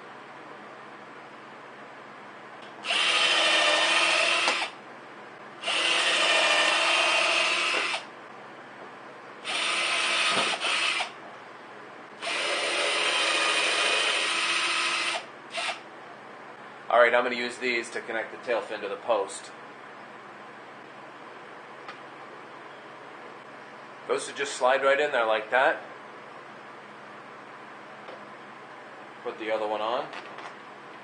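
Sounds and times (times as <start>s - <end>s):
cordless drill motor whine: 2.8s - 4.8s, 5.6s - 8.1s, 9.4s - 11.2s, 12.2s - 15.8s.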